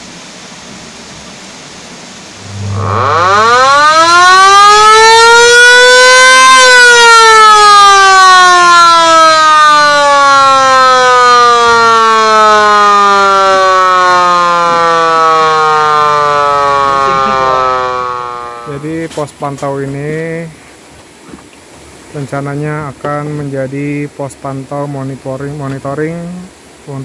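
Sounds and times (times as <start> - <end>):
loud siren wailing: 2.4 - 19.0.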